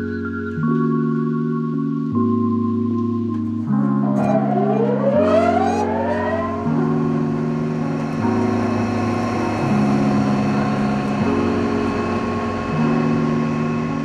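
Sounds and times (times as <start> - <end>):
held synthesizer chords: 0.0 - 14.0
steady high tone: 3.7 - 9.2.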